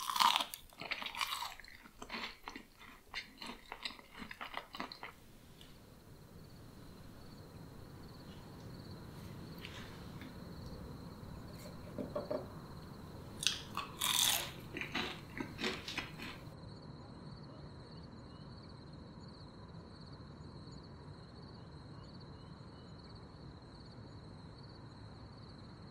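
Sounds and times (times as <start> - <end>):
pastry crunching: 0.0 - 5.8, 13.2 - 16.5
faint steady hiss: 0.0 - 16.6.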